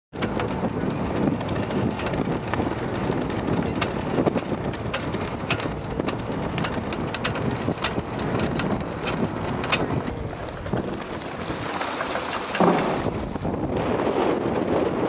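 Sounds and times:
wind buffeting microphone: 0:00.2 - 0:15.0
rushing splashing water: 0:10.5 - 0:13.8.

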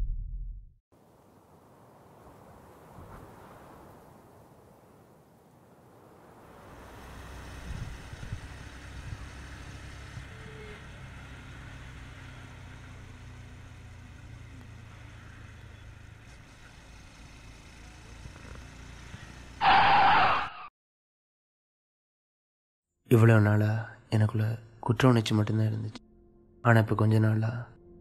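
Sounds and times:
motorcycle engine running: 0:06.7 - 0:19.6.

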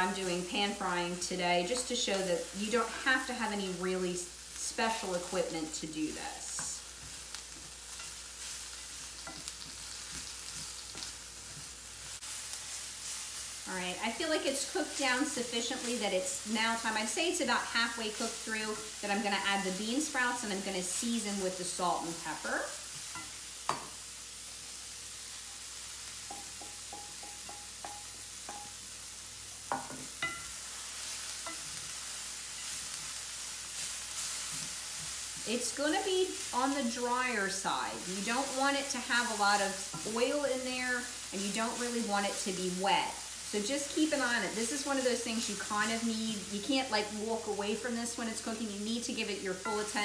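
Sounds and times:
vegetables sizzling in a frying pan: 0:00.0 - 0:50.0
light metallic pings: 0:26.3 - 0:28.8.

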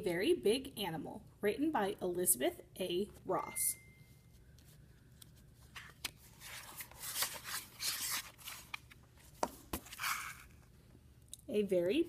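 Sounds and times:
paper rustling and scraping: 0:04.7 - 0:10.7.

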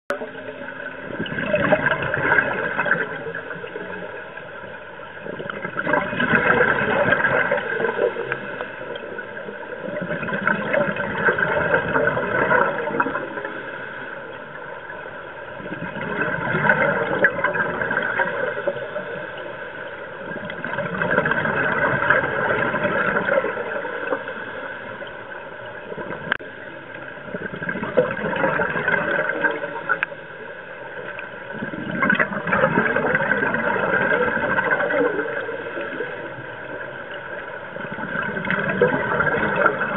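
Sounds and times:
bubbly underwater exhalations: 0:05.3 - 0:08.3, 0:09.9 - 0:13.5, 0:15.6 - 0:18.6, 0:20.3 - 0:23.8, 0:27.3 - 0:30.0, 0:31.5 - 0:36.2, 0:37.8 - 0:39.9.

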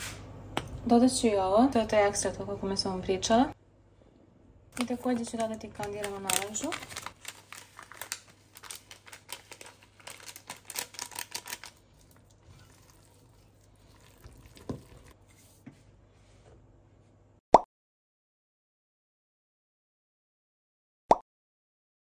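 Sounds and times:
plastic packet crinkling: 0:04.8 - 0:15.2
spatula stirring thick batter: 0:12.0 - 0:15.8.

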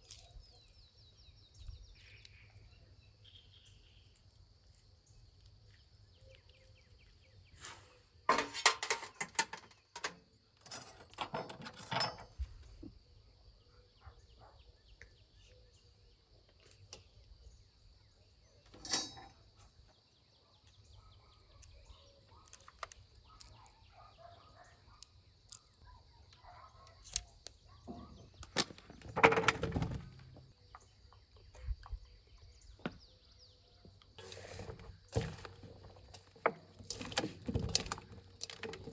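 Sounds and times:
metal skewers clinking and scraping: 0:08.3 - 0:12.4, 0:18.7 - 0:19.4.

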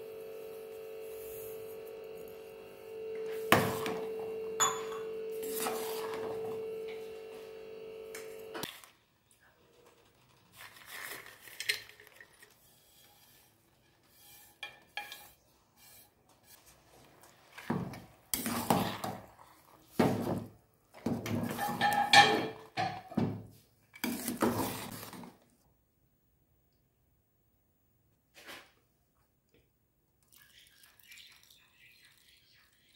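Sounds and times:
ladle scraping steel pot: 0:10.4 - 0:16.1, 0:21.3 - 0:22.6.

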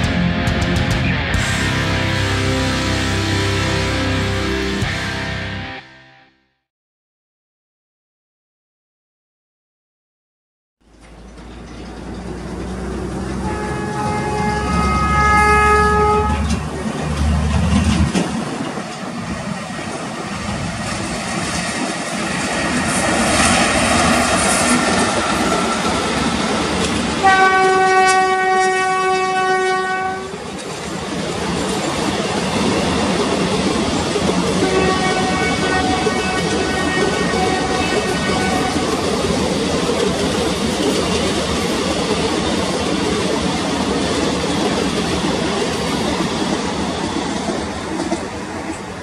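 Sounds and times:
train running noise: 0:00.0 - 0:05.4, 0:10.8 - 0:49.0
train horn blasts: 0:13.2 - 0:16.7, 0:24.7 - 0:30.4, 0:34.6 - 0:39.1.

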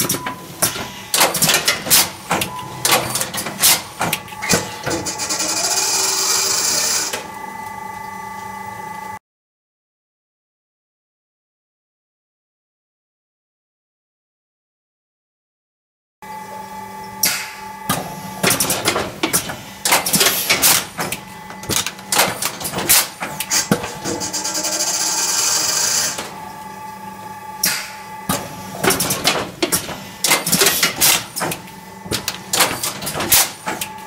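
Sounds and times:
strapping machine clicking and clattering: 0:00.0 - 0:05.8, 0:18.4 - 0:26.4, 0:28.3 - 0:34.0.

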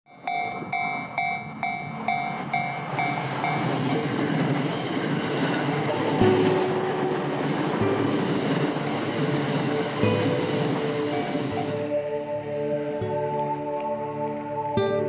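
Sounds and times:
train wheels rumbling on track: 0:00.1 - 0:12.0.

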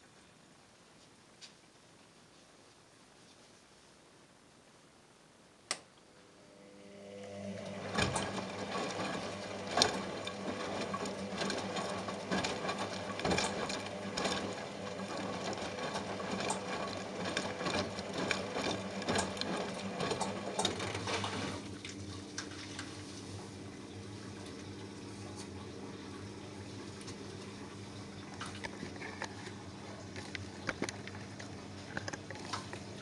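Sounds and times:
washing machine motor hum: 0:06.1 - 0:33.0
water sloshing and splashing: 0:07.9 - 0:23.5.

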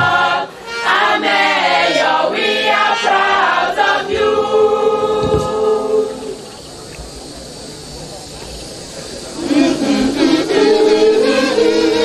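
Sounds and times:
mixed choir singing: 0:00.0 - 0:06.6, 0:09.2 - 0:12.0.

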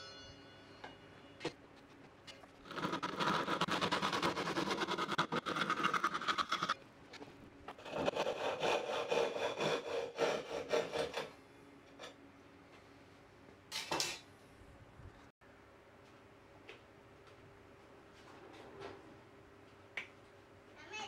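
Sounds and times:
hand saw cutting wood: 0:02.6 - 0:06.8, 0:07.8 - 0:11.3.

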